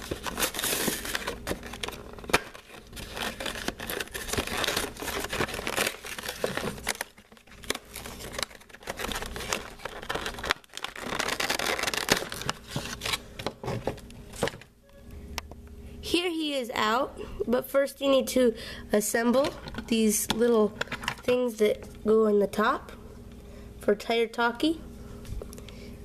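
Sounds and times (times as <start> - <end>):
plastic packaging crackling: 0.0 - 14.6.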